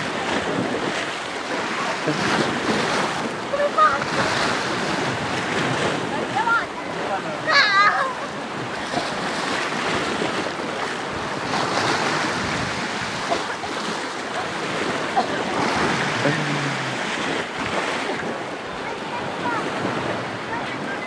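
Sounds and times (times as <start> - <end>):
sea waves lapping: 0.0 - 21.0
wind on microphone: 0.0 - 21.0.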